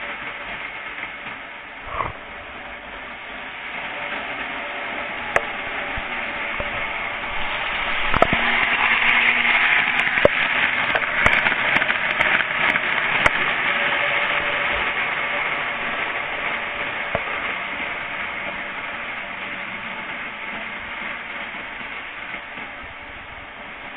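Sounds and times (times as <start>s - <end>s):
model train running on track: 0.0s - 23.9s.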